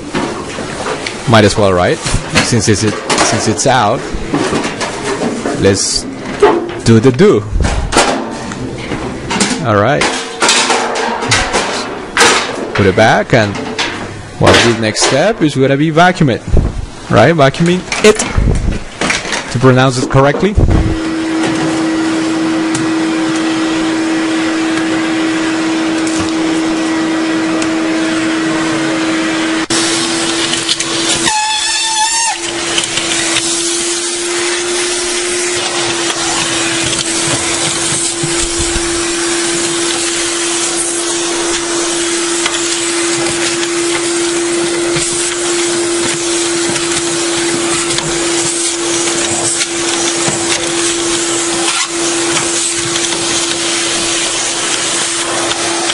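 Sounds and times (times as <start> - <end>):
vacuum cleaner running: 20.6 - 55.9
warbling whistle: 31.2 - 32.5.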